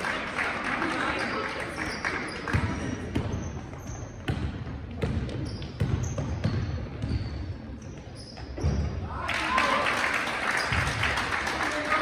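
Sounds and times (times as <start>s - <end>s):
basketball bouncing on floor: 2.5s - 3.5s, 4.2s - 7.4s.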